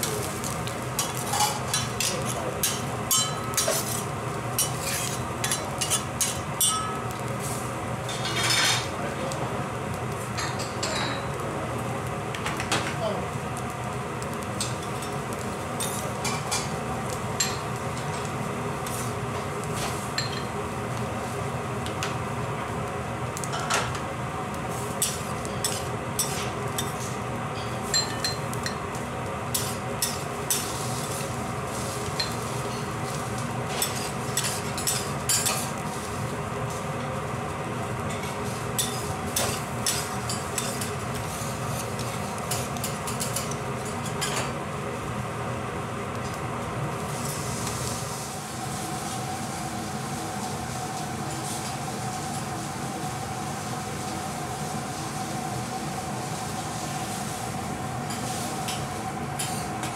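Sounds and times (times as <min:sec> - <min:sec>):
metal spatula clinking on griddle: 0:01.1 - 0:04.0, 0:04.6 - 0:07.1.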